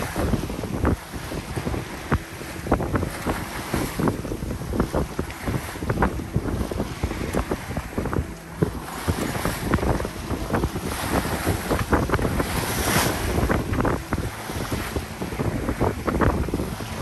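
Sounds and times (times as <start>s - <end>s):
water rushing along boat hull: 0.0s - 17.0s
wind buffeting microphone: 0.0s - 17.0s.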